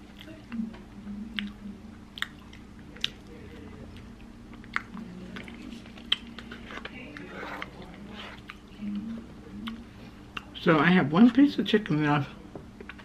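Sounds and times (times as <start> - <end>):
person chewing food: 1.3 - 10.6.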